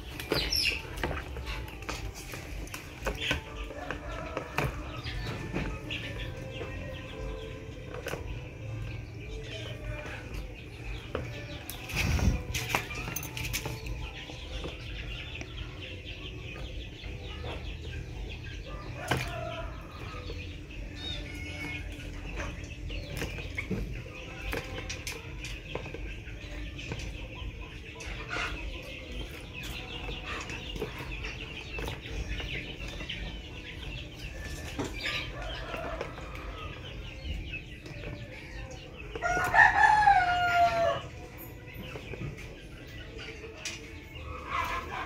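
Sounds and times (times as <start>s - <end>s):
rooster crowing: 39.2s - 41.0s.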